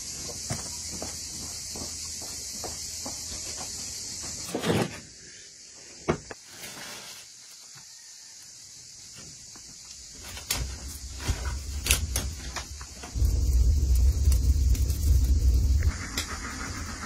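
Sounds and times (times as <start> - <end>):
footsteps on concrete: 0.0 - 4.5.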